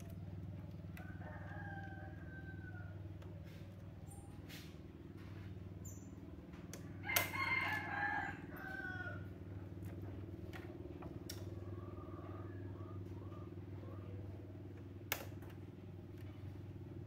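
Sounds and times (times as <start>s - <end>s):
steady low hum: 0.0s - 17.0s
rooster crowing: 1.0s - 3.2s, 6.9s - 9.5s.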